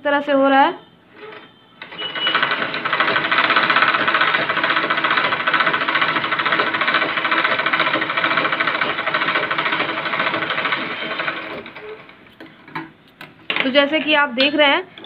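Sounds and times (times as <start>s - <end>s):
sewing machine stitching: 1.2s - 12.3s.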